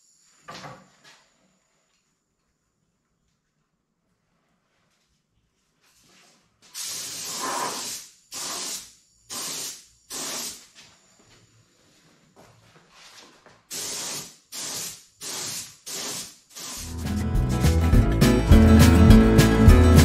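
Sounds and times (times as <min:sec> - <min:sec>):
spray gun hissing bursts: 0:06.7 - 0:10.7, 0:13.7 - 0:17.0.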